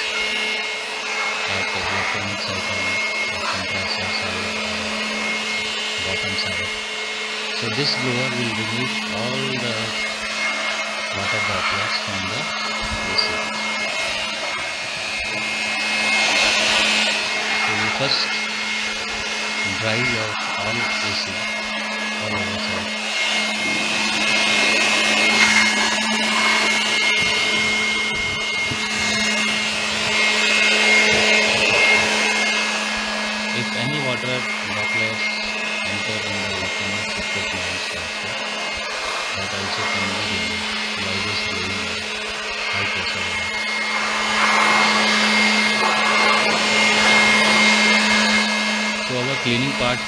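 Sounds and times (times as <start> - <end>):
electric air blower running: 0.0 - 50.0.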